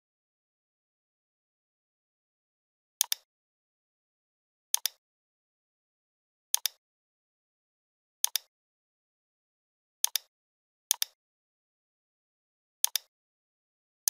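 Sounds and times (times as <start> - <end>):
computer mouse button clicks: 6.6 - 6.8.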